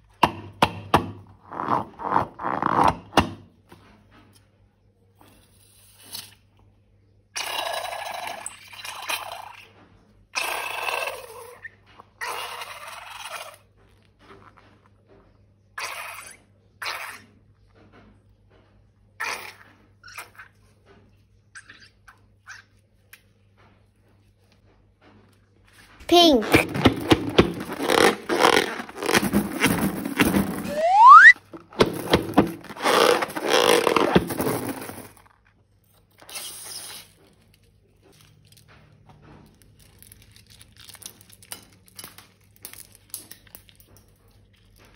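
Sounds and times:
balloon squeal: 26.1s - 35.1s.

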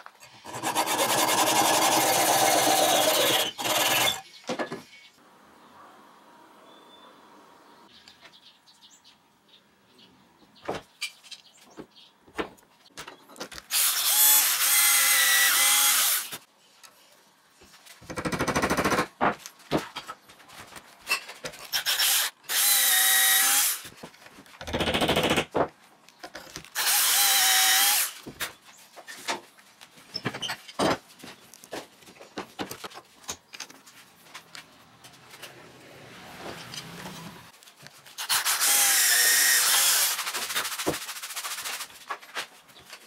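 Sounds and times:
electric drill boring wood: 0.3s - 4.2s, 13.7s - 16.4s, 26.8s - 28.2s, 38.2s - 40.3s.

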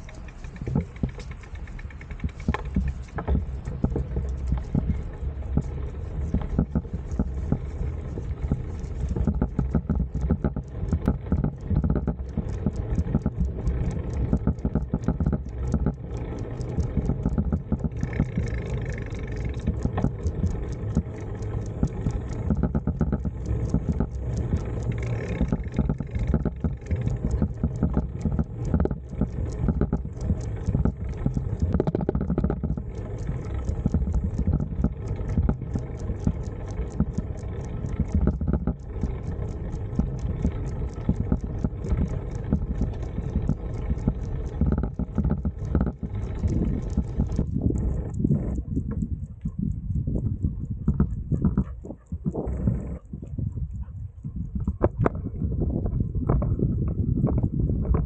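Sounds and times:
wind on microphone: 0.0s - 16.0s, 16.6s - 58.0s
tyres rumbling on asphalt: 0.0s - 49.2s
bicycle ticking: 0.0s - 57.8s.

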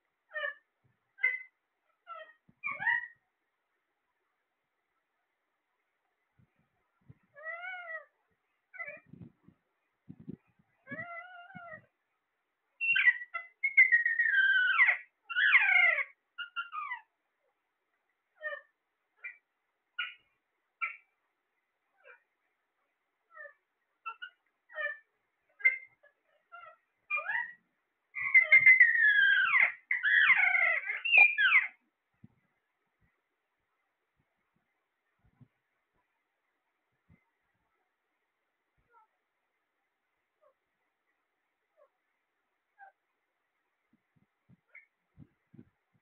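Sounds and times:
parakeets whistling calls: 12.8s - 17.0s, 28.2s - 31.8s.

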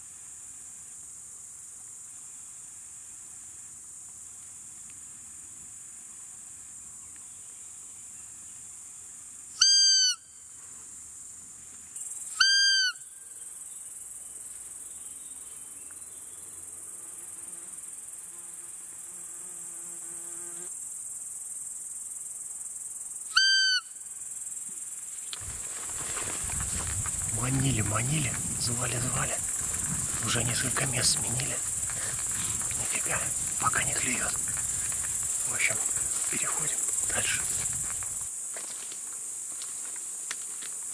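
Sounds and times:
squeaky deer call: 9.6s - 10.4s, 12.4s - 13.1s, 23.3s - 24.0s
high insect chirring: 12.0s - 40.9s.

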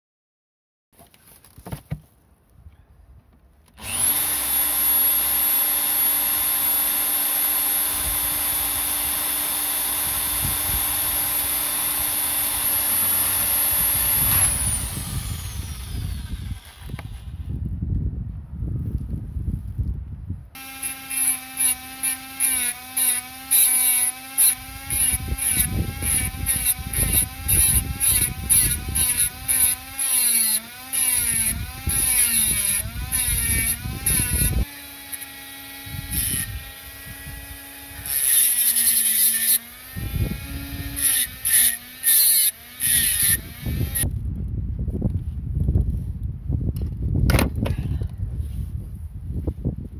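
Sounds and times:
grinder scraping bursts: 3.8s - 17.5s, 20.6s - 44.1s
power tool grinding metal: 3.8s - 17.5s, 20.6s - 44.1s.

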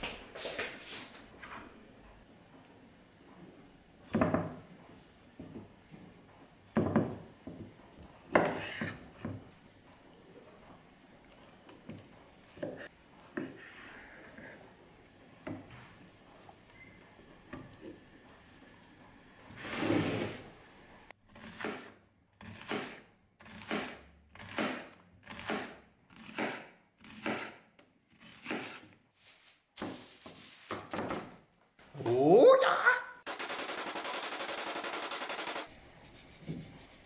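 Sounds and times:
knife slicing onion on board: 21.3s - 29.0s.

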